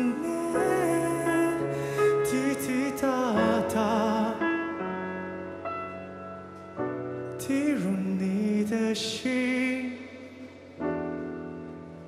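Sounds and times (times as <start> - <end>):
man singing: 0.0 - 4.8, 7.4 - 10.8
grand piano chords: 0.0 - 12.0.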